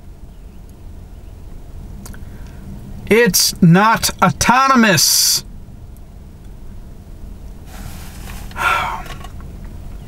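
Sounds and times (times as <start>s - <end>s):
low rumble in car cabin: 0.0s - 10.0s
man sighing: 8.6s - 9.2s.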